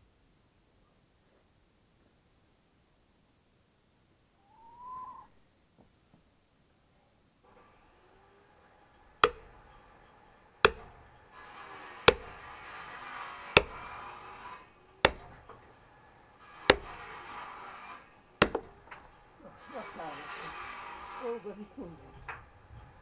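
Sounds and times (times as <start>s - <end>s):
axe chopping log: 9.2s - 9.6s, 10.6s - 11.1s, 12.0s - 12.7s, 13.4s - 14.2s, 15.0s - 15.6s, 16.6s - 17.2s, 18.4s - 19.0s.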